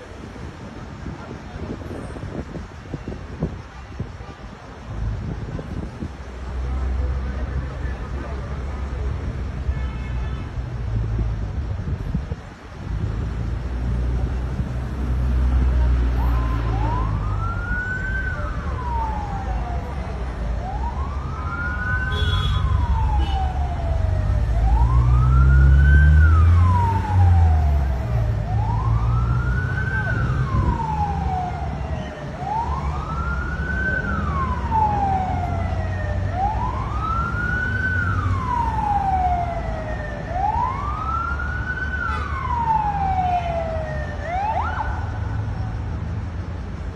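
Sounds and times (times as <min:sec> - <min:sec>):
siren wailing: 0:16.2 - 0:45.3.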